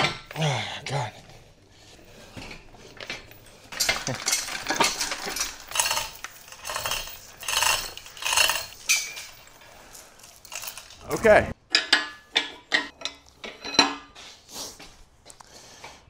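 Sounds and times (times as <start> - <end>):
metal clanking and scraping: 1.8 - 14.2
ringing metal clink: 3.7 - 11.0.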